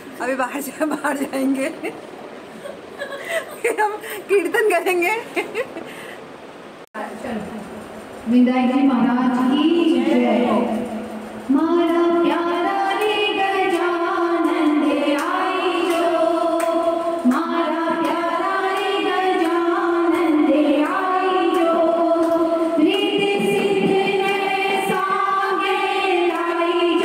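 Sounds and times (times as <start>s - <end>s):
women singing devotional song: 8.3s - 27.0s
hand claps keeping time: 12.9s - 27.0s.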